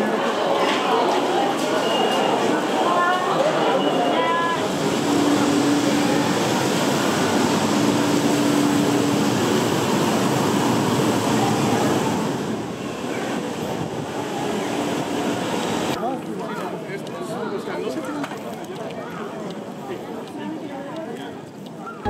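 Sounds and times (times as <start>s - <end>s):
train rumbling: 4.2s - 16.0s.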